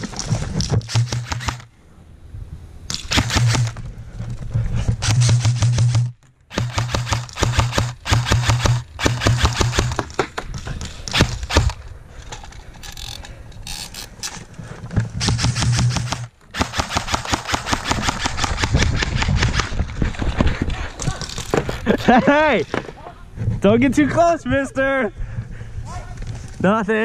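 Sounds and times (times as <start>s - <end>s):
airsoft rifle full-auto bursts: 0.9s - 1.6s, 2.9s - 3.8s, 5.0s - 10.0s, 15.2s - 19.3s.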